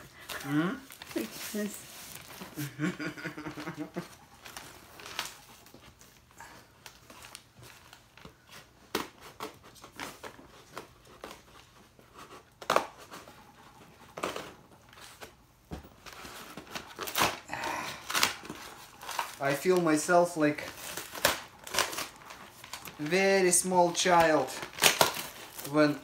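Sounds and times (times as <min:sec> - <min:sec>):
tape tearing: 0:16.0 - 0:26.0.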